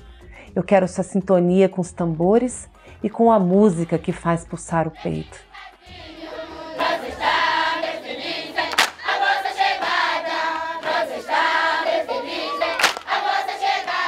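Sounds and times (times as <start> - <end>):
group of voices singing: 4.8 - 14.0
sharp snaps: 8.7 - 9.0, 12.8 - 13.2.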